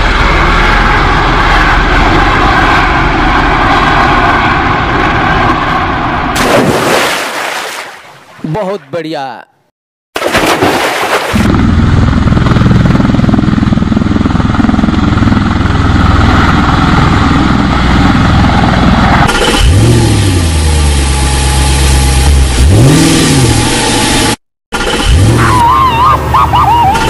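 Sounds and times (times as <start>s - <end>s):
engine rumbling and revving: 11.4s - 27.0s.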